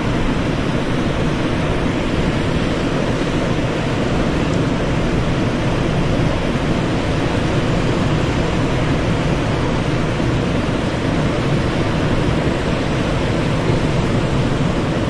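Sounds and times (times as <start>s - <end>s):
waves breaking on sandy beach: 0.0s - 15.0s
wind rumbling on microphone: 0.0s - 15.0s.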